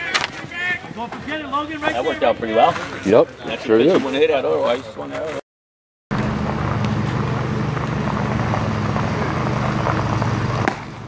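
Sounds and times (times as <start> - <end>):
engine drone: 6.1 - 11.0.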